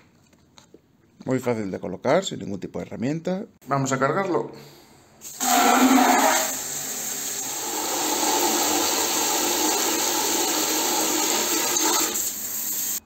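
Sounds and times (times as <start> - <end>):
water spraying into plastic tank: 5.3 - 13.0.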